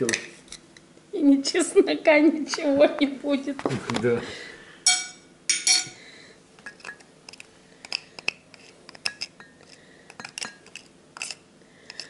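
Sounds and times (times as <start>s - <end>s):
glass cup clinking: 4.9s - 6.0s.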